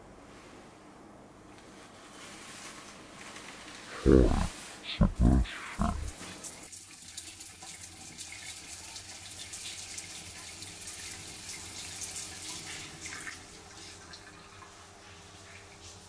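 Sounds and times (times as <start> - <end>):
tap water running into basin: 6.7 - 15.9.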